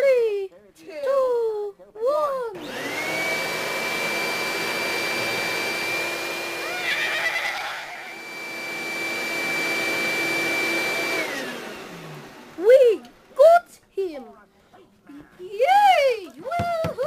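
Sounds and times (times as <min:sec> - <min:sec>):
vacuum cleaner whine: 0:02.6 - 0:13.3.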